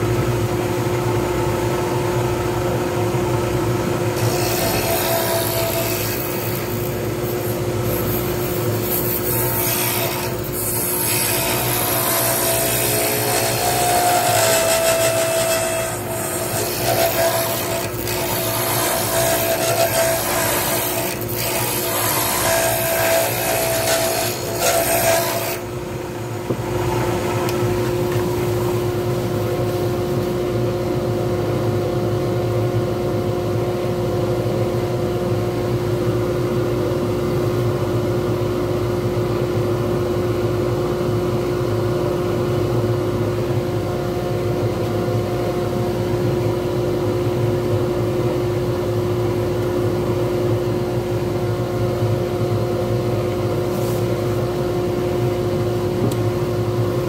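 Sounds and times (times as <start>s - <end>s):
gouge scraping on lathe: 7.4s - 25.6s.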